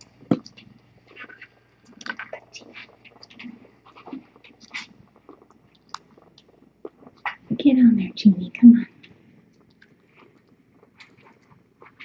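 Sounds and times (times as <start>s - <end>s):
kittens suckling: 0.4s - 7.5s, 9.0s - 12.0s.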